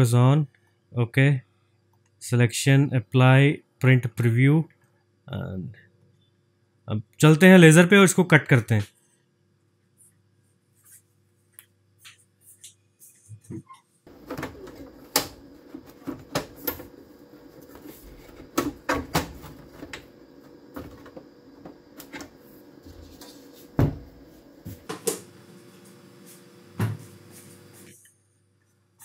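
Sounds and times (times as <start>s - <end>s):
steady machine hum: 14.1s - 28.0s.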